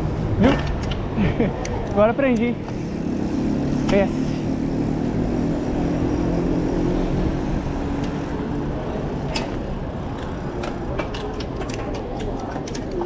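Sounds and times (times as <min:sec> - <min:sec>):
bike riding rumble: 0:00.0 - 0:13.0
bike rattling on cobbles: 0:02.6 - 0:13.0.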